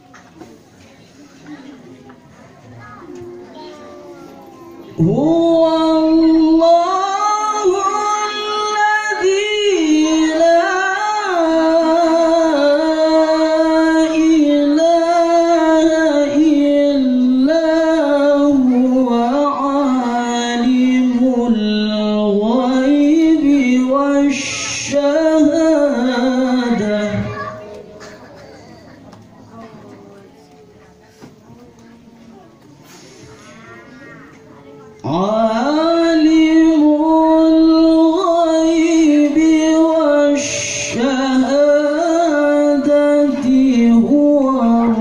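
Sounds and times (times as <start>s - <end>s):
man reciting melodically: 4.8s - 28.7s, 35.0s - 45.0s.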